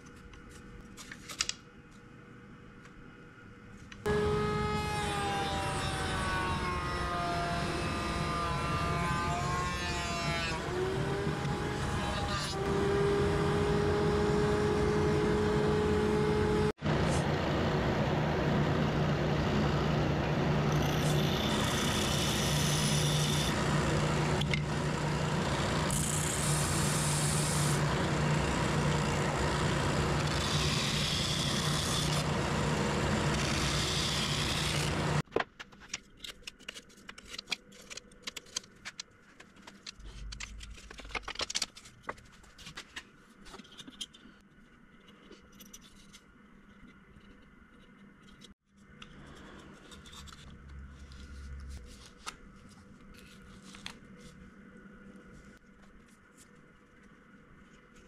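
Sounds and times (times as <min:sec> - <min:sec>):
router whining: 0:04.1 - 0:18.2, 0:18.9 - 0:35.2.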